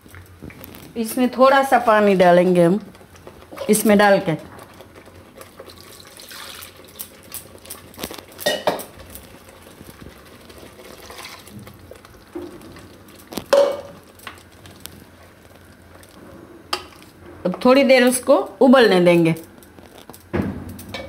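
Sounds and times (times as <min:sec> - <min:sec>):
wet stirring: 0:00.0 - 0:17.2
metal spoon clanking on steel pan: 0:08.4 - 0:08.9.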